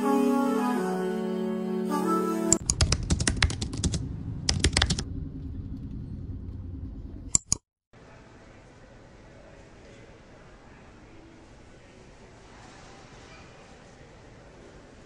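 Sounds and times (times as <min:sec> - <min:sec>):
keyboard typing clicks: 0:02.5 - 0:05.0, 0:07.3 - 0:07.6
sharp clicks: 0:02.6 - 0:05.0, 0:07.3 - 0:07.6
low steady rumble: 0:02.7 - 0:07.3.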